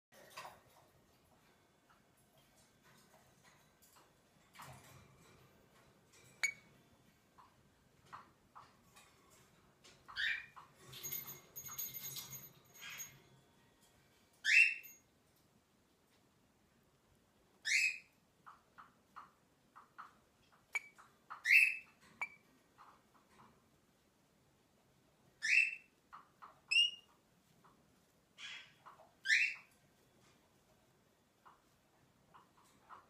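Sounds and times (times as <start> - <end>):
lorikeet squeaky chirps: 10.1 - 10.6, 14.4 - 14.9, 17.6 - 18.1, 20.7 - 22.4, 25.4 - 27.1, 28.4 - 29.7.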